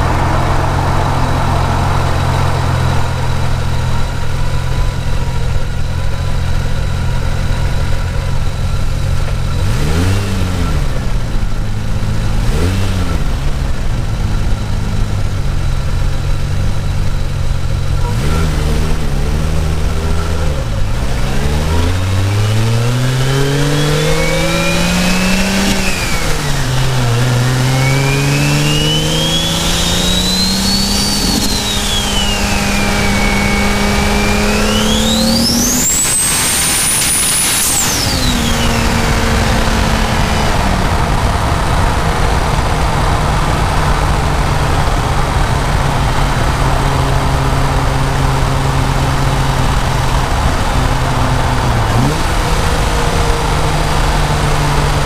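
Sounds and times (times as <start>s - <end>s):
car engine revving: 0.0s - 55.0s
turbo whistle: 27.6s - 39.7s.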